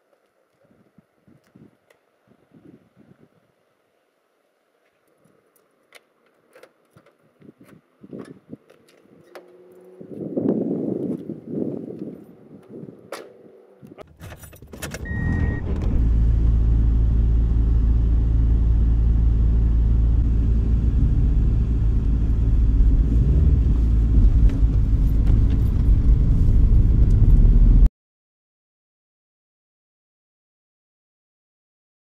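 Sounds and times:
car keys jangling: 14.0 - 15.2
car engine running: 14.9 - 27.9.

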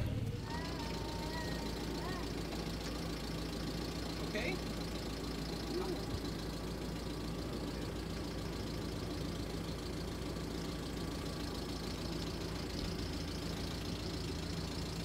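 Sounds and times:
van engine idling: 0.0 - 15.0.

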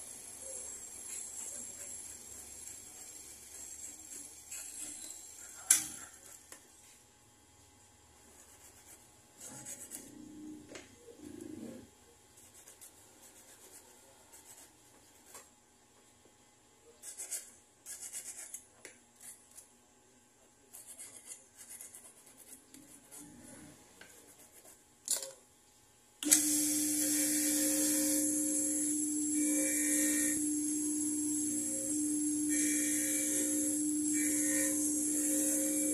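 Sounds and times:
hand file scraping a ring: 0.5 - 6.4, 8.3 - 10.3, 17.0 - 19.4, 20.7 - 24.8, 26.4 - 35.9
bench motor humming: 26.2 - 35.9.

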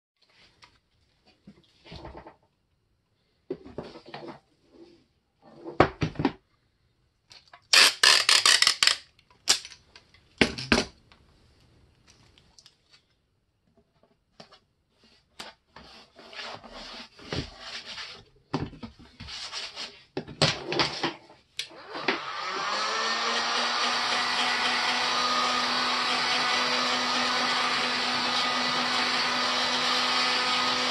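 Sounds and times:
rubbing and scraping: 13.9 - 21.4.

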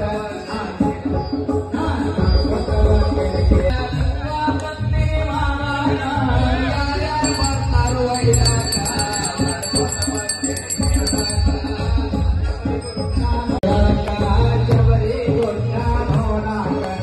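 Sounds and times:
devotional music with drumming: 0.0 - 17.0
small bell rung rapidly: 7.1 - 13.6.

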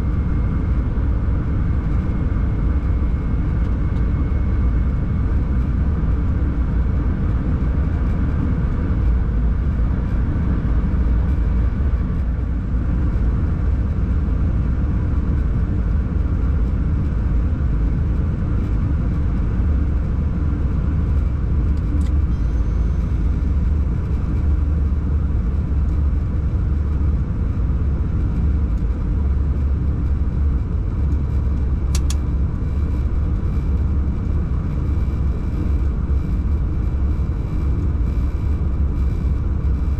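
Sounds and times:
click with high tone: 31.9 - 32.2
sharp click: 31.9 - 32.2.

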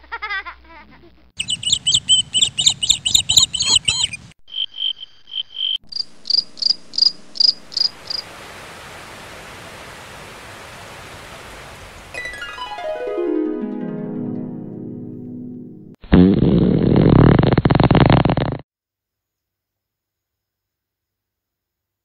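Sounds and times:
insect chirping: 1.4 - 10.8
steady hiss: 6.1 - 12.2.

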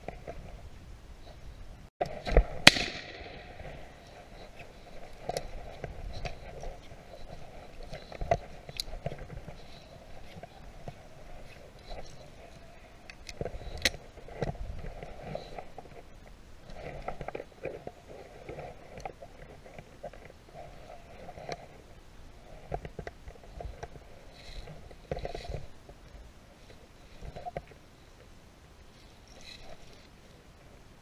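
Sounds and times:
clothing rubbing against camera: 3.7 - 21.8.

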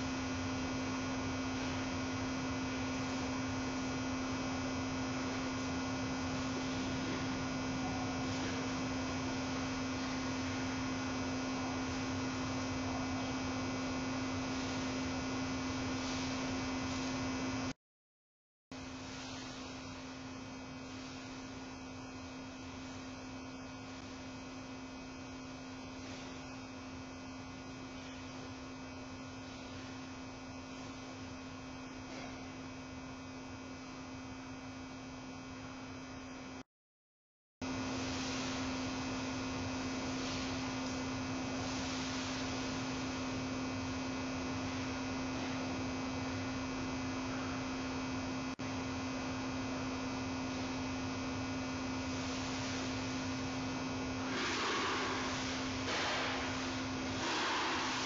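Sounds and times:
steady one-tone hum: 0.0 - 17.8, 18.7 - 36.6, 37.6 - 58.0.

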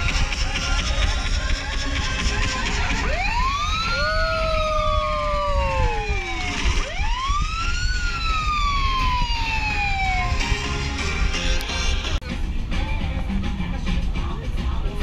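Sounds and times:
synthesised siren sweeps: 2.4 - 11.6.

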